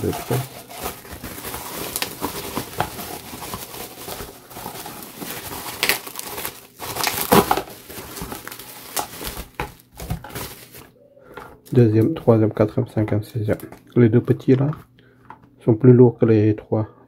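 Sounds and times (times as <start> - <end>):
bubble wrap crinkling: 0.0 - 11.0.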